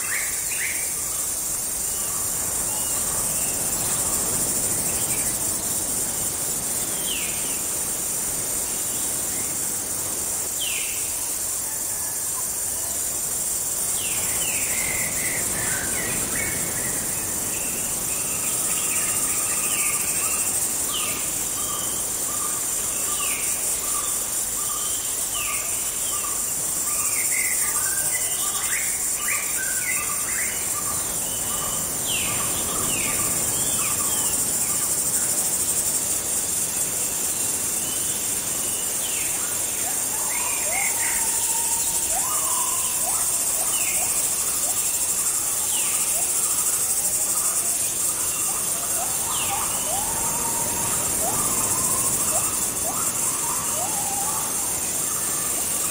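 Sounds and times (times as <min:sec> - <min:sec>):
high-pitched insect chorus: 0:00.0 - 0:55.9
birds chirping: 0:37.2 - 0:55.9.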